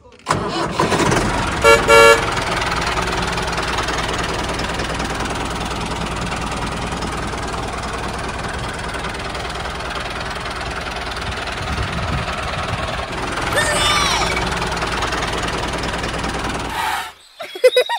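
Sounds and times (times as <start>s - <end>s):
tractor engine running: 0.0s - 17.0s
horn toot: 1.6s - 2.3s.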